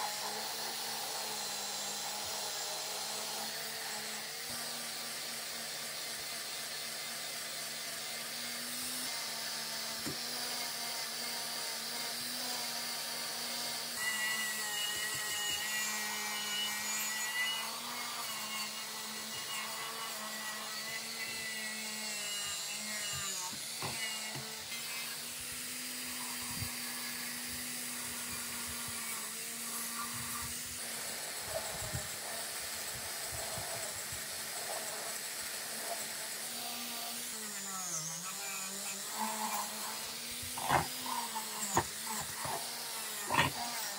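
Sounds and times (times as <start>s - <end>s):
angle grinder motor whine: 0.0s - 43.9s
grinding disc scraping metal: 39.0s - 43.9s.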